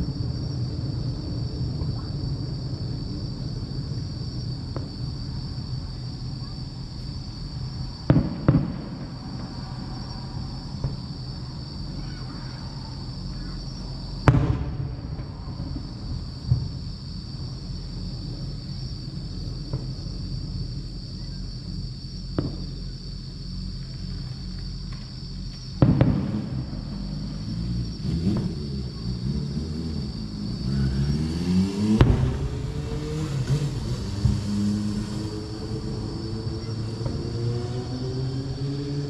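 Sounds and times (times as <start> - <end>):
steady low rumble: 0.0 - 12.1, 12.7 - 29.2
distant fireworks booms: 0.0 - 38.0
vehicle engine accelerating: 17.5 - 39.0.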